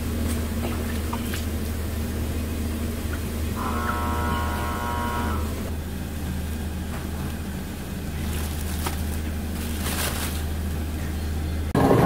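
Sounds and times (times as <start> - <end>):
machinery motor hum: 0.0 - 12.0
plastic wrap rustling: 8.2 - 10.9.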